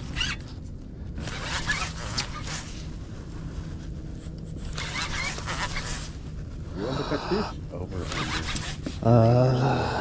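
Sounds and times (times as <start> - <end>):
fishing reel scratchy noise: 4.7 - 6.1, 8.0 - 8.8.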